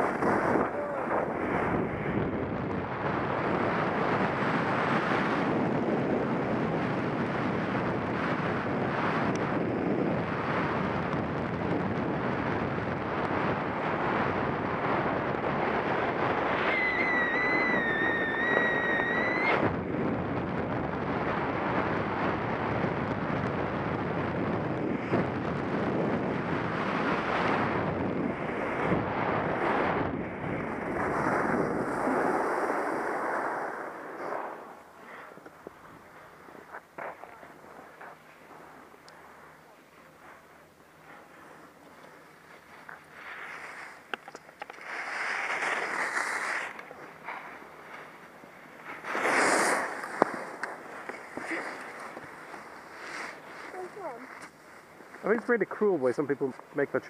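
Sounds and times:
skis sliding on snow: 0.0s - 1.7s, 28.3s - 57.0s
wind rushing over microphone: 0.0s - 38.0s
high whistling tone: 16.6s - 19.6s.

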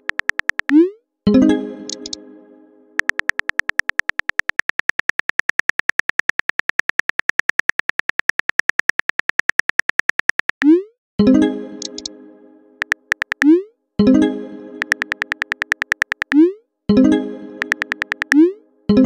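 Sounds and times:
phone keyboard tap clicks: 0.0s - 0.8s, 3.0s - 10.6s, 12.8s - 13.5s, 14.8s - 16.4s, 17.6s - 18.4s.

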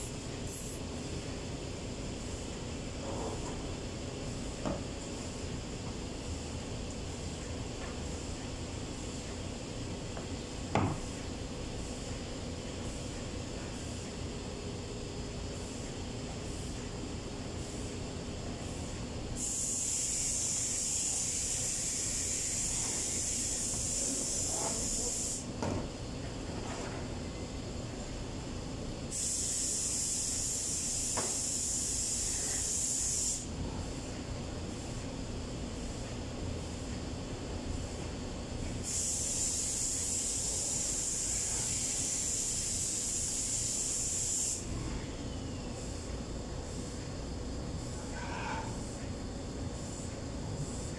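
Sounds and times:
steady high hiss: 0.0s - 14.7s, 15.3s - 25.6s, 27.3s - 37.0s, 37.6s - 47.2s.

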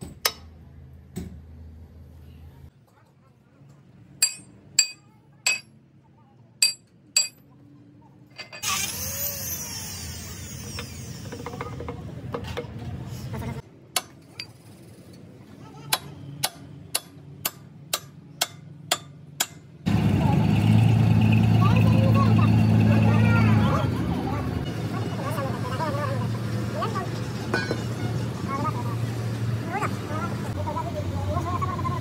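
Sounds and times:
hammer striking steel pin: 4.2s - 5.7s, 6.6s - 7.4s, 15.9s - 19.7s
engine running: 19.8s - 32.0s.

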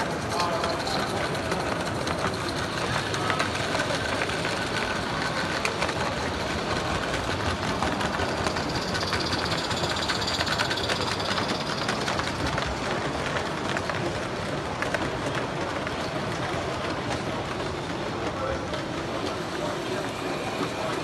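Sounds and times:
model train wheels rattling on track: 0.0s - 21.0s.

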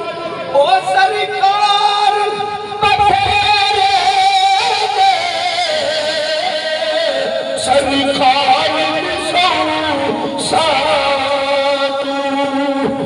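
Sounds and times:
man singing a long note: 0.0s - 13.0s.

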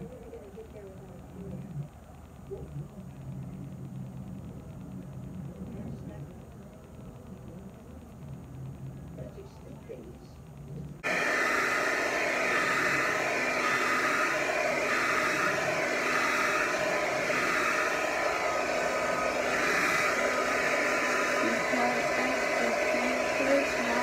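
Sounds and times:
hair dryer blowing: 11.0s - 24.0s.

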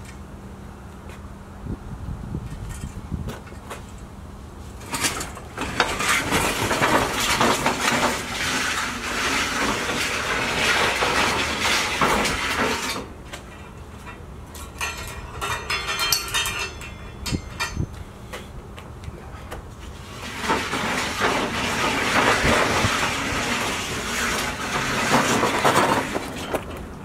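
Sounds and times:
metal sled scraping on asphalt: 4.6s - 17.9s, 19.7s - 27.0s
light metal clinks: 14.8s - 18.1s.

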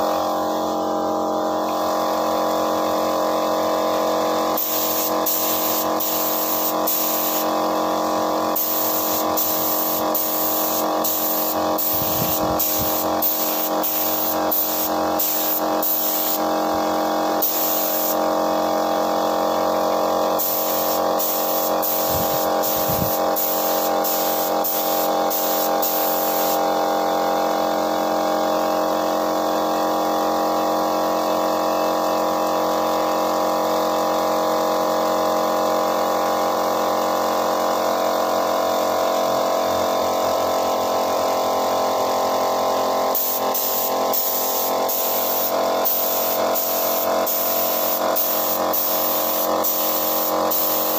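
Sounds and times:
air compressor humming: 0.0s - 27.7s, 40.4s - 50.9s
spray gun hissing bursts: 4.5s - 16.7s, 17.3s - 18.3s, 20.3s - 26.7s, 43.1s - 50.9s.

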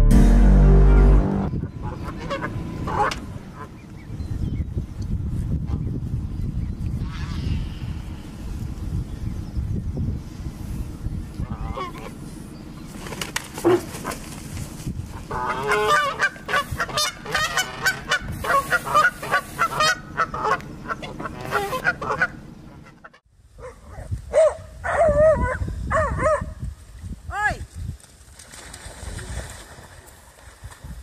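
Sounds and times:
geese honking: 0.7s - 3.9s, 15.3s - 23.2s.

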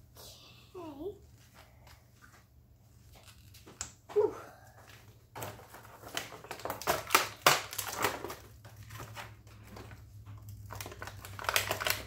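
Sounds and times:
plastic packaging crinkling: 5.3s - 12.0s.

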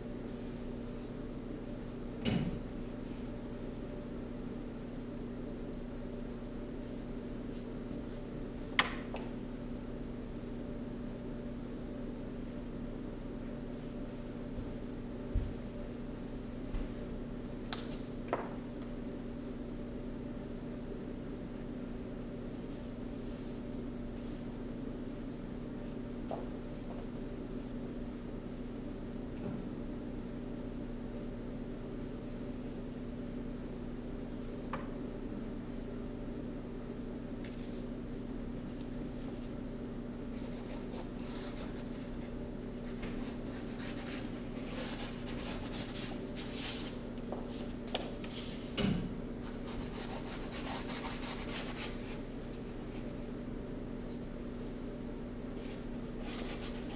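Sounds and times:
steady hum: 0.0s - 56.9s.

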